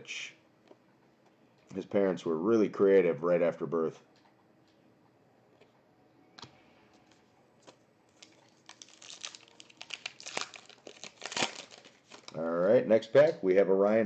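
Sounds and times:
foil pack crinkling and tearing: 7.6 - 12.5.

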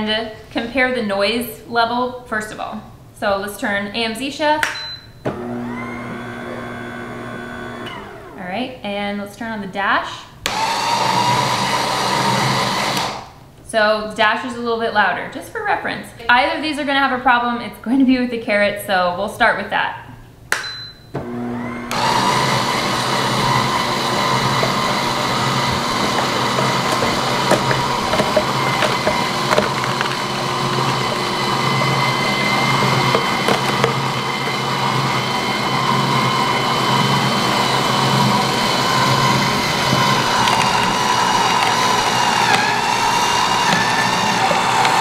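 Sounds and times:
juicer motor hum and whine: 5.3 - 8.4, 10.5 - 13.2, 21.2 - 45.0
carrots cracking in juicer: 21.2 - 45.0.

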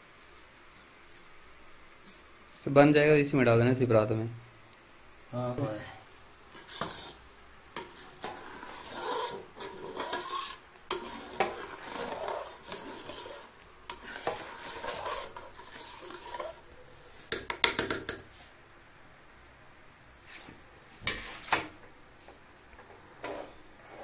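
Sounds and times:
ladle scraping in metal pot: 6.5 - 7.2, 7.8 - 16.7.

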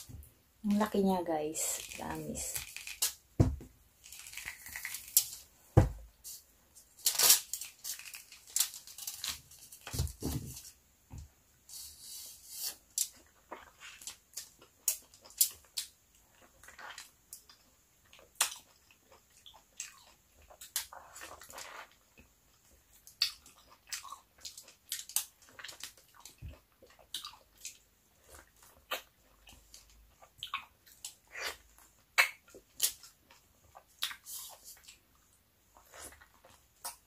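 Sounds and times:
heavy thumps: 3.4 - 3.8, 5.8 - 6.1.

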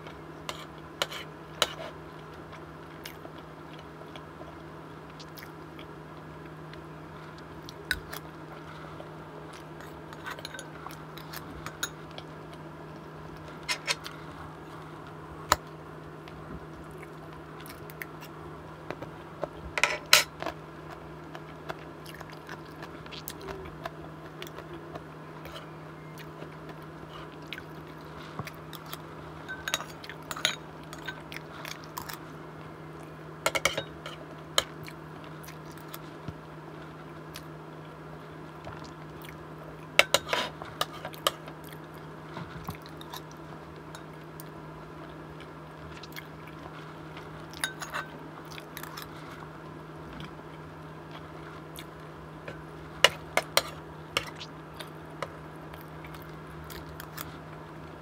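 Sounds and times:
steady low hum: 0.0 - 58.0
chewing: 20.4 - 32.4, 44.0 - 49.5, 50.1 - 57.4
spoon clinking on ceramic bowls: 29.5 - 31.2, 33.5 - 34.0, 47.6 - 48.1.

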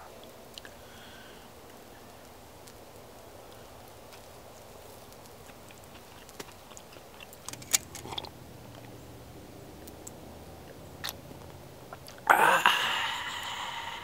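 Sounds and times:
quiet chewing: 0.1 - 0.8, 1.6 - 9.0, 9.8 - 12.3.

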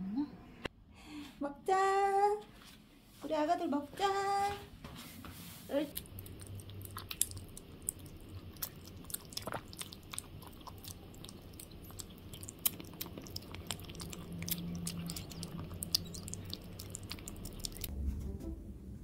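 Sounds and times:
kittens lapping and chewing: 5.9 - 17.9.

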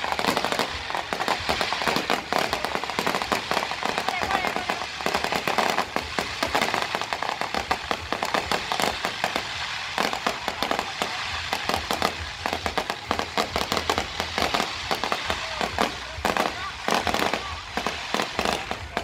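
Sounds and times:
fireworks bursting: 0.0 - 19.0.

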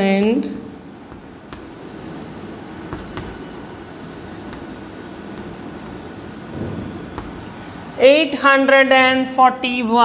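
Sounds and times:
steady background hum: 0.0 - 10.0
chalk tapping on blackboard: 1.0 - 7.5
chalk scratching on blackboard: 1.1 - 7.5.

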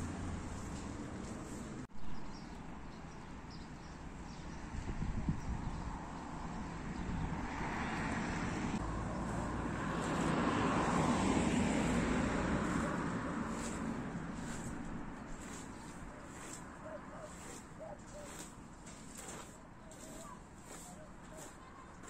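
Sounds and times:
vehicle passing by: 0.0 - 1.9, 5.8 - 22.0.

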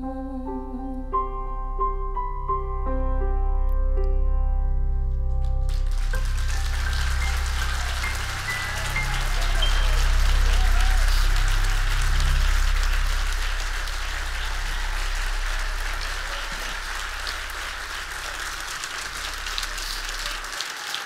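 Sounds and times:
audience applauding: 5.6 - 21.0
low sustained tone: 6.2 - 20.1.

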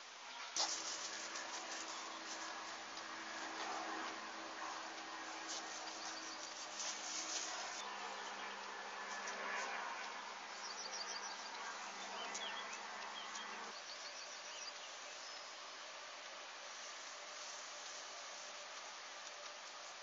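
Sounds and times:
insects buzzing: 0.0 - 20.0
outdoor hiss: 0.0 - 20.0.

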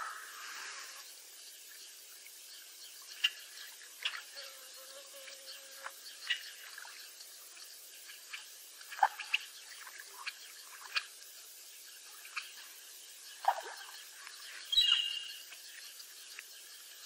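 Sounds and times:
water dripping and plopping: 3.0 - 4.4, 5.8 - 17.0
high-pitched bird chirp: 14.7 - 15.4.

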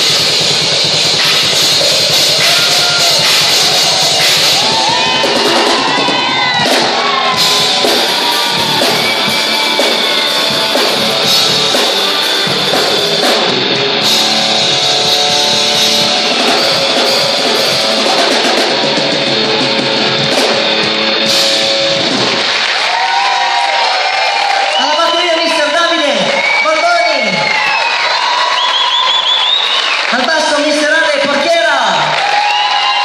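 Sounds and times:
drum kit with crashing cymbals: 0.0 - 22.8
electric guitar: 0.0 - 24.5.

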